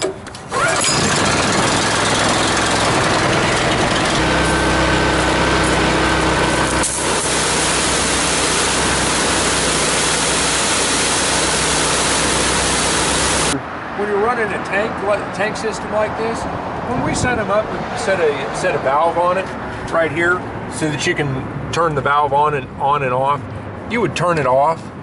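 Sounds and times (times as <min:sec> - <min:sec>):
engine pull-started and running: 0:00.0 - 0:13.6
water spraying from wand: 0:06.6 - 0:13.6.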